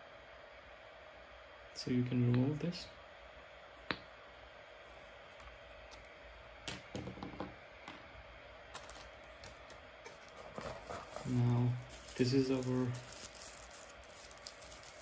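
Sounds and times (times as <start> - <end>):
cardboard box and plastic bag rustling: 8.7 - 15.0.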